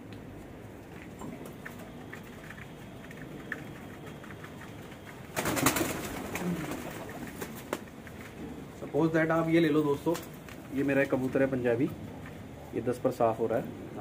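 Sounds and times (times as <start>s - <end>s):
pigeons cooing: 1.3s - 8.0s
pigeon flapping wings: 1.4s - 8.1s.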